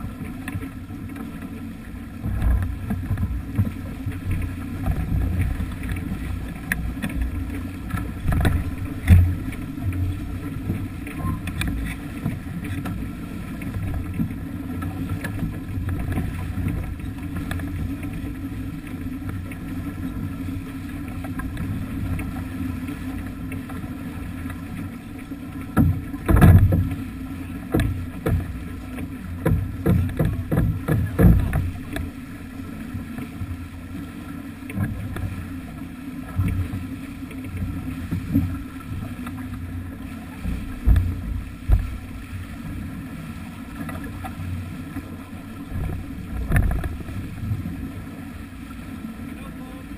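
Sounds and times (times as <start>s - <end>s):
water rushing along hull: 0.0s - 49.9s.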